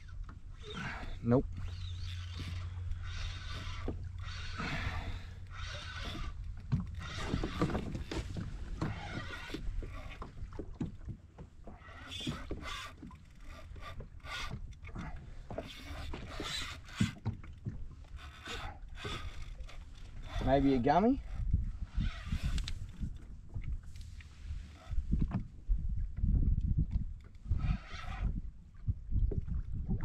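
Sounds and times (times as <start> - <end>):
water slapping kayak hull: 0.0 - 27.2
wind rumbling on microphone: 0.0 - 30.0
knocks and clatter on kayak: 5.8 - 20.6, 25.0 - 27.4.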